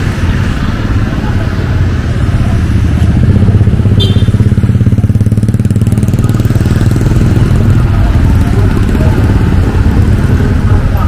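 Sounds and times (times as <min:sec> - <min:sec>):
motorbike engine idling: 0:01.1 - 0:11.0.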